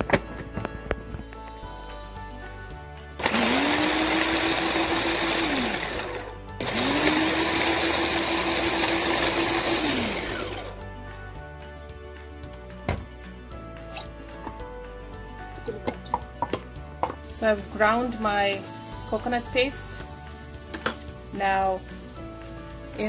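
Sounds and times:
electric grinder motor: 0:03.2 - 0:10.8.

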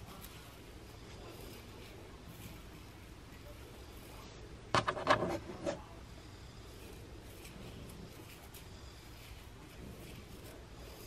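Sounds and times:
fingernails scratching scalp: 0:04.8 - 0:05.9, 0:06.5 - 0:11.0.

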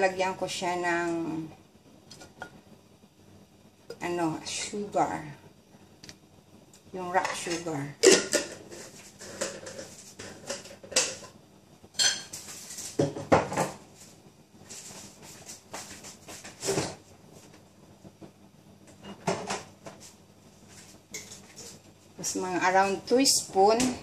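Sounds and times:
pots and utensils clattering: 0:07.2 - 0:11.4, 0:12.0 - 0:13.8.

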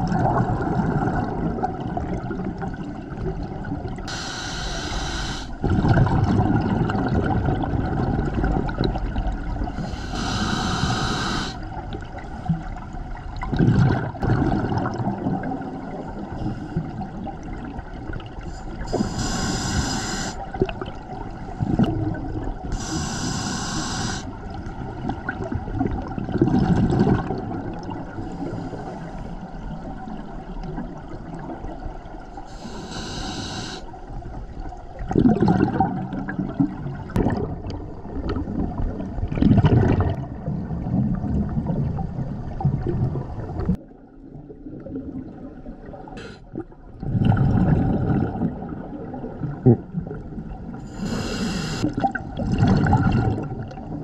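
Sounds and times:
gurgling bubbles: 0:00.0 - 0:28.8, 0:29.4 - 0:54.0
regulator inhale hiss: 0:04.1 - 0:05.6, 0:09.8 - 0:11.7, 0:18.4 - 0:20.5, 0:22.7 - 0:24.4, 0:28.2 - 0:29.4, 0:32.4 - 0:33.9, 0:46.2 - 0:46.4, 0:50.8 - 0:51.9.

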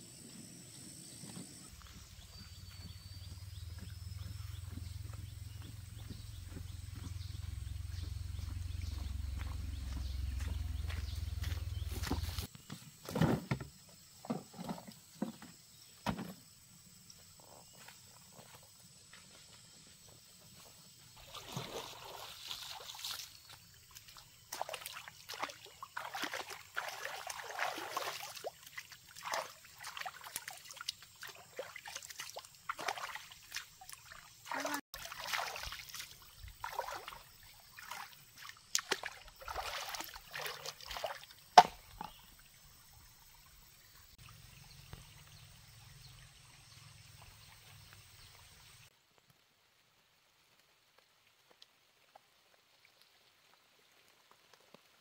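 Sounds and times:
hands splashing water: 0:24.0 - 0:41.8.

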